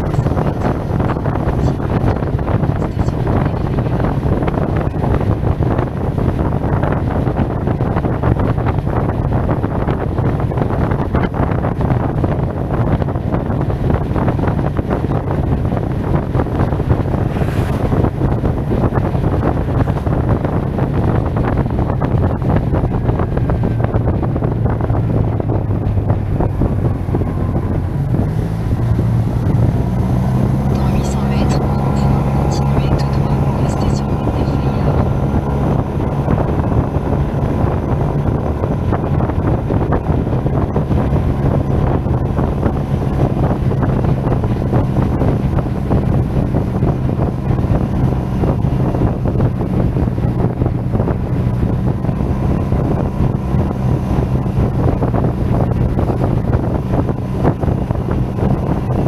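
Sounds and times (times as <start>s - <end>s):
wind buffeting microphone: 0.0s - 59.0s
scooter engine running: 14.1s - 58.4s.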